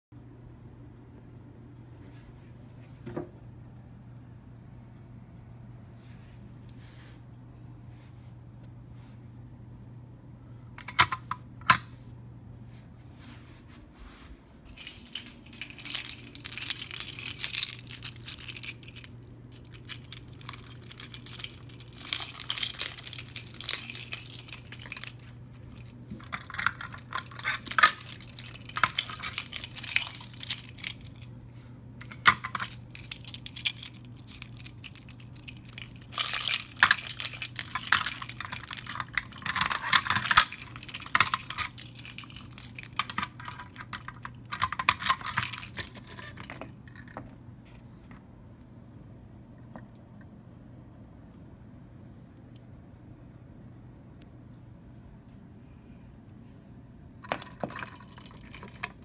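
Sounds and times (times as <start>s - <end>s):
plastic parts clicking and rattling: 10.8s - 11.9s, 14.8s - 31.2s, 32.0s - 47.4s, 57.2s - 59.0s.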